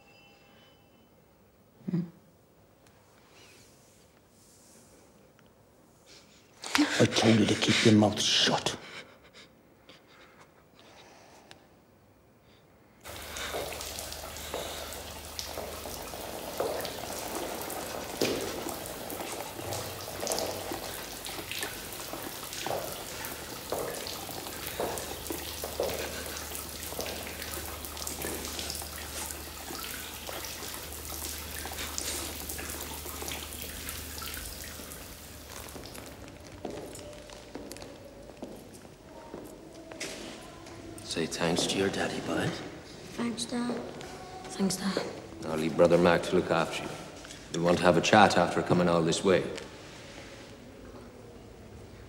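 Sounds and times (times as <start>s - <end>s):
falling water patter: 13.0s - 38.9s.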